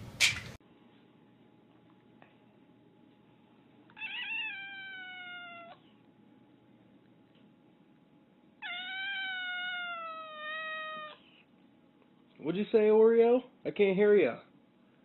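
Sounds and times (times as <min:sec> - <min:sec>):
cat meowing: 0:03.9 - 0:05.9, 0:08.6 - 0:11.3.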